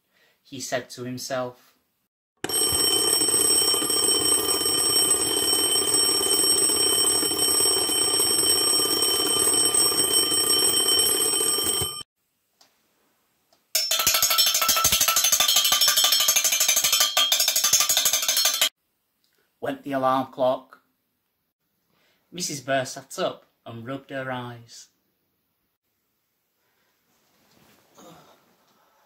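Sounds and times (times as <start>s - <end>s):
bell alarm clock ringing: 2.4s - 12.1s, 13.8s - 18.7s.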